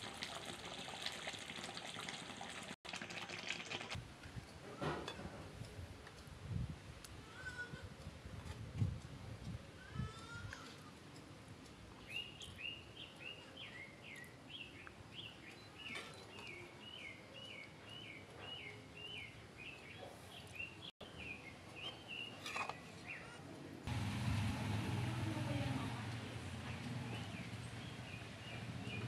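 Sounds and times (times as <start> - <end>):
bird chirping: 12.0 - 23.3.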